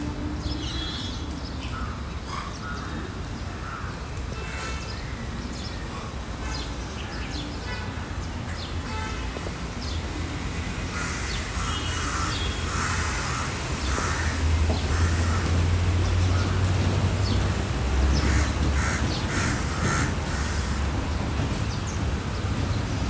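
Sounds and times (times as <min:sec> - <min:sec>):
crows cawing: 0:10.9 - 0:15.7, 0:18.2 - 0:20.8.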